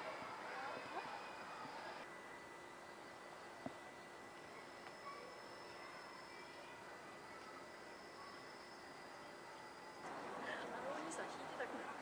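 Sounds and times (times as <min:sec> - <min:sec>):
faint steady high tone: 0:00.0 - 0:10.1
outdoor background hiss: 0:00.0 - 0:12.0.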